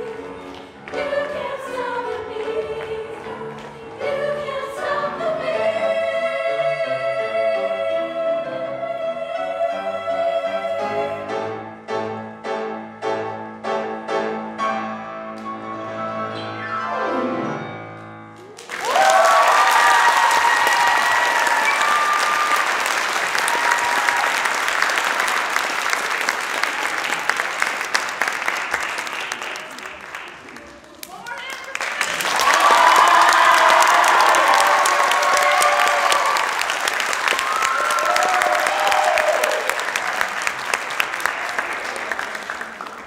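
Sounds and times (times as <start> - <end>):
women's choir singing: 0.0 - 11.4
piano chords: 0.0 - 18.6
audience clapping and cheering: 18.4 - 43.0
audience whoops: 18.6 - 26.0, 32.0 - 40.4.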